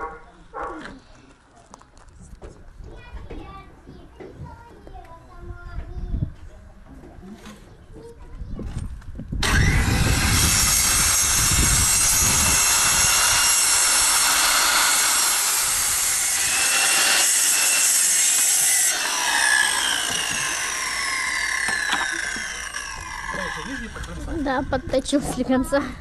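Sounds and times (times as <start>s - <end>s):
saw blade winding down: 9.4s - 24.8s
circular saw cutting wood: 9.4s - 25.2s.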